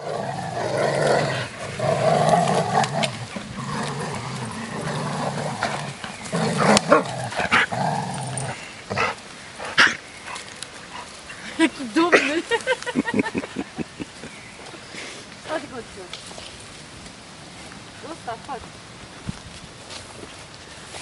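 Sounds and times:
dogs growling: 0.0s - 11.2s, 12.9s - 14.3s.

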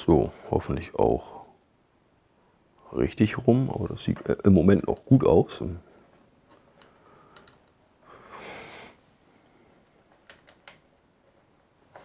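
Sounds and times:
small plastic parts clicking: 6.5s - 7.8s, 10.1s - 10.9s
short breathy hiss: 8.0s - 9.0s.

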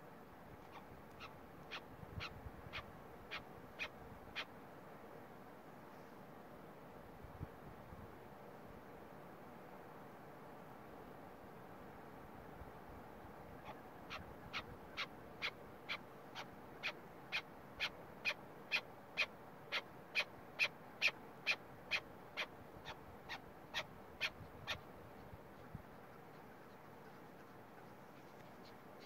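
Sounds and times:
partridge chuck calls: 13.6s - 24.9s.

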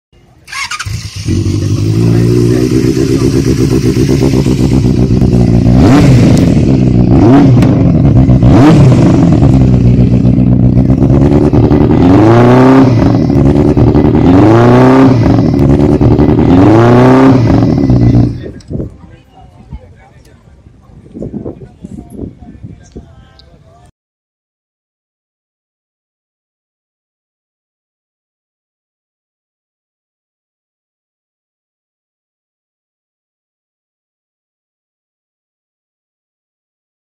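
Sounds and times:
motorcycle engine idling and revving: 0.4s - 20.2s.

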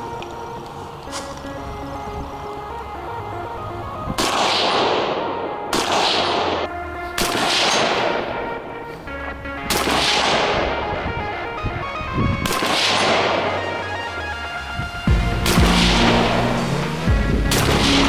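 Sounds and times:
background music: 0.0s - 18.0s
rifle shots echoing: 4.2s - 8.8s, 9.6s - 11.1s, 12.4s - 14.0s.

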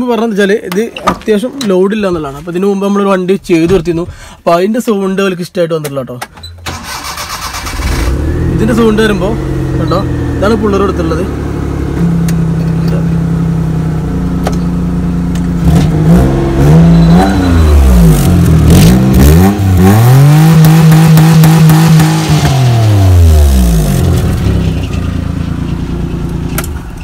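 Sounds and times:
car engine idling and revving: 6.8s - 27.0s.

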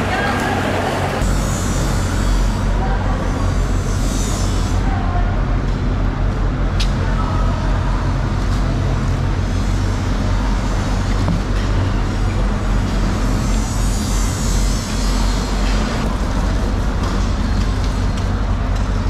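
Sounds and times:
engine rumbling: 0.0s - 19.0s.

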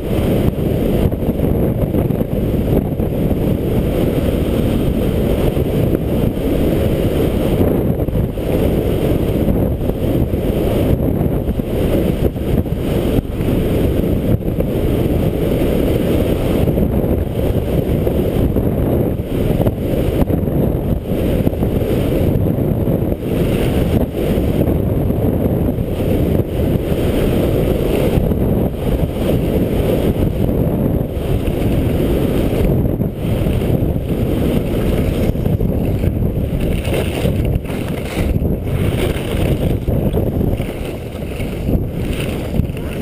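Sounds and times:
wind rumbling on microphone: 0.0s - 43.0s
skis scraping over snow: 33.3s - 43.0s.

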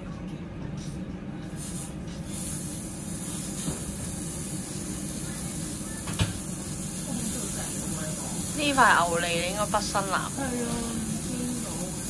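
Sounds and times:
meat sizzling on a grill: 1.5s - 12.0s.

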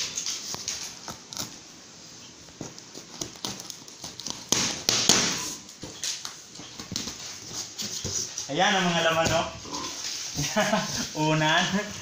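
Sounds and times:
cardboard rustling: 2.4s - 4.8s, 5.4s - 12.0s
scissors cutting packing tape: 2.8s - 4.9s.

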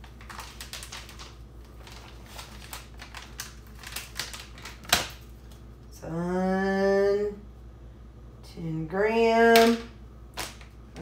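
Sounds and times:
plastic pouch crinkling: 0.0s - 5.6s.

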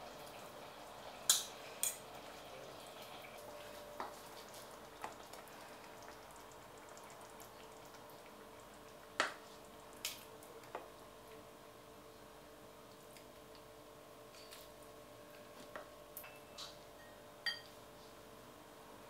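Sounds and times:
faint steady hum: 0.0s - 19.0s
kitchenware clinking on ceramic bowl: 16.2s - 17.8s.

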